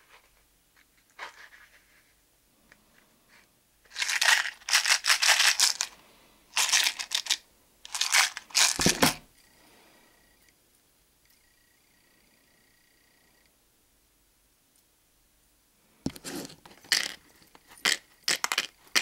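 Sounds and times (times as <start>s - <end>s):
crinkling plastic packaging: 3.9s - 9.1s.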